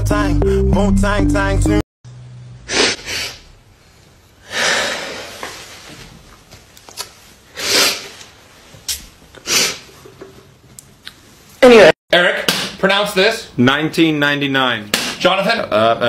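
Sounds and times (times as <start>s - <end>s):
person breathing noisily: 4.4s - 5.4s.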